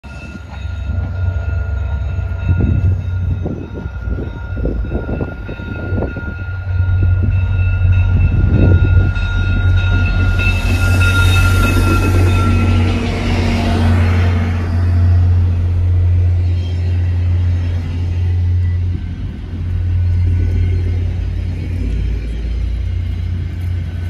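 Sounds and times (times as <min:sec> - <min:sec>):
diesel locomotive engine rumble: 0:00.0 - 0:24.0
train rushing hiss: 0:08.6 - 0:24.0.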